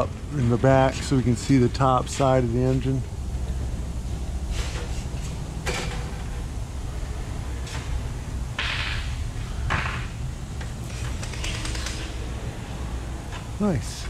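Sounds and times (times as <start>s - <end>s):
low rumble of shop noise: 0.0s - 14.0s.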